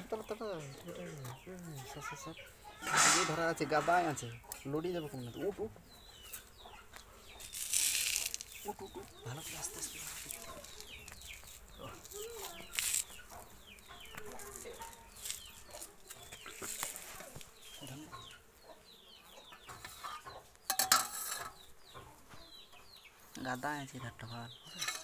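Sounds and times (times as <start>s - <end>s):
chicks peeping: 0.0s - 20.7s, 21.5s - 24.8s
chickens clucking: 0.0s - 25.0s
loud rustling: 2.8s - 4.3s, 7.4s - 13.6s.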